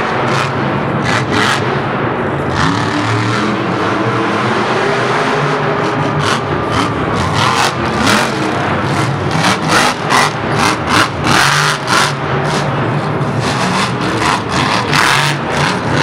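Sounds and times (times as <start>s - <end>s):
truck engine revving in bursts: 0.0s - 16.0s.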